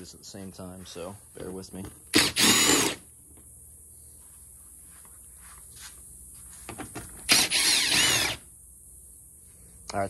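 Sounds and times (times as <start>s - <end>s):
impact driver whine: 2.1s - 3.1s, 7.0s - 8.5s.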